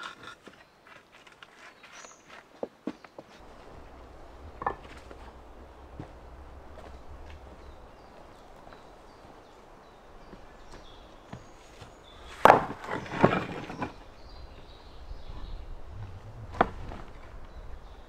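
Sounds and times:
pieces dropped into a wheelbarrow: 12.3 - 14.0.

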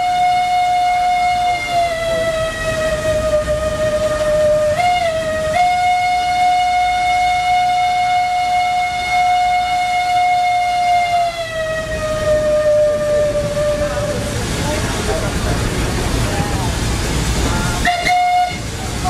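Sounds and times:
steam whistle blast: 0.0 - 14.1, 17.8 - 18.7.

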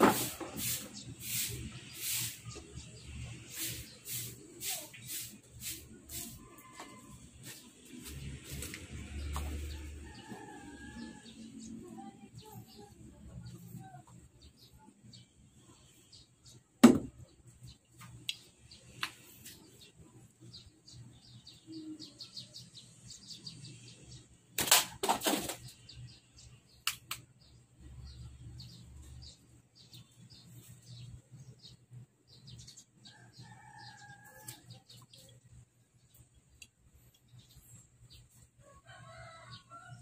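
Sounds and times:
small birds chirping: 0.2 - 24.5, 25.4 - 40.0
sharp knocks: 16.8 - 17.1.

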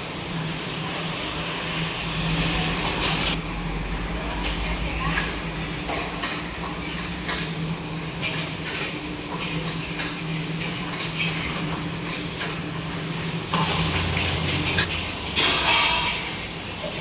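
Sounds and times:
dishes and utensils clinking: 13.5 - 17.0.

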